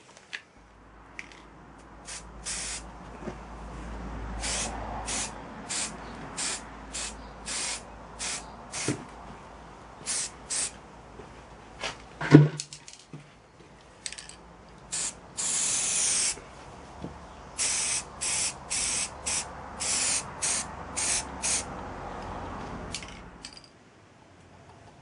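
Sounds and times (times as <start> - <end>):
spray paint can hissing: 2.1 - 2.8, 4.4 - 9.0, 10.0 - 10.8, 14.9 - 16.4, 17.6 - 21.7.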